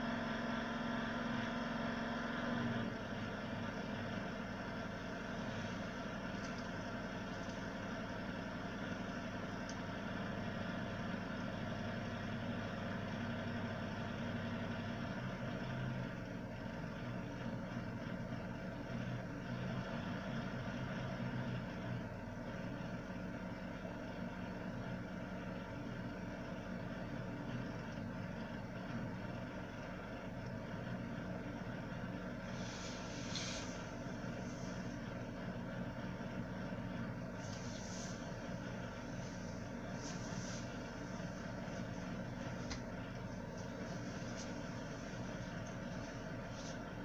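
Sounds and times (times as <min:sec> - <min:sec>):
power supply fan whir: 0:00.0 - 0:47.0.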